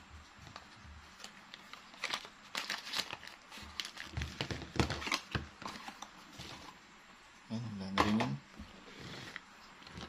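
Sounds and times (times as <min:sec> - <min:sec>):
packaging crinkling and rustling: 0:00.4 - 0:06.8.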